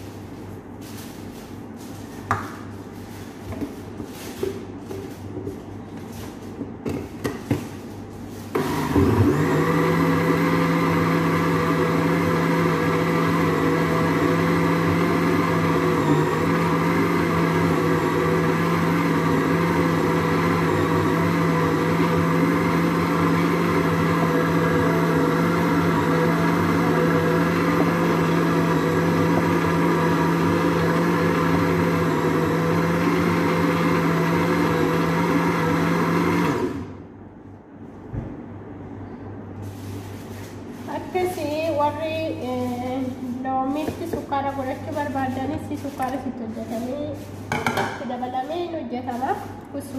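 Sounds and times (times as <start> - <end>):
blender running: 8.5 - 37.0.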